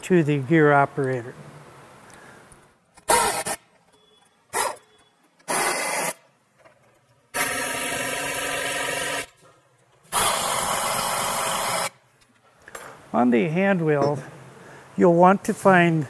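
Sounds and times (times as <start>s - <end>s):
power ratchet running: 5.5s - 6.2s, 7.4s - 9.3s, 10.1s - 11.9s.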